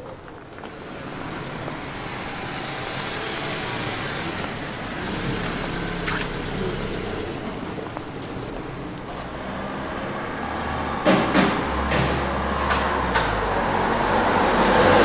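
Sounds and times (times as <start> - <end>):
car driving past: 0.8 - 15.0.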